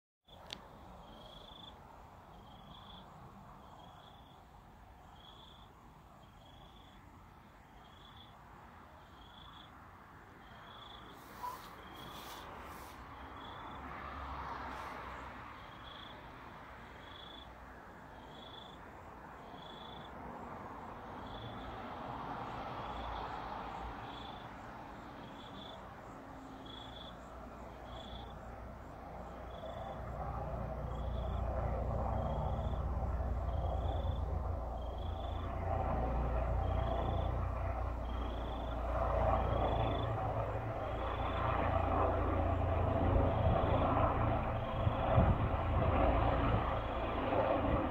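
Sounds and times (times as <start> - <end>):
helicopter rotor and engine rumble: 26.5 - 47.9.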